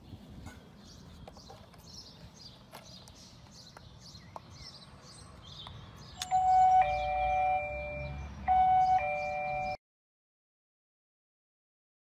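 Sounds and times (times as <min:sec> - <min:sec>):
electronic ding-dong chime: 0:06.2 - 0:09.8.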